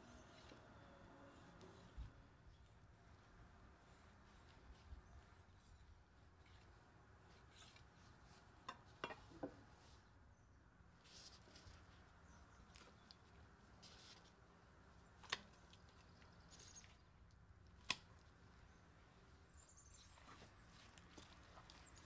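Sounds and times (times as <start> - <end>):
faint handling noises: 11.0 - 22.0.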